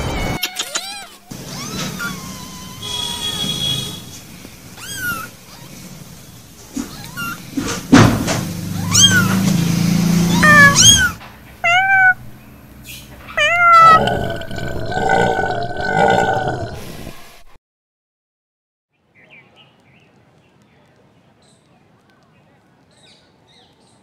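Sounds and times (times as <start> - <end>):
kittens mewing: 0.4 - 4.0, 4.7 - 7.9, 8.6 - 9.5, 10.2 - 12.4, 13.2 - 16.1.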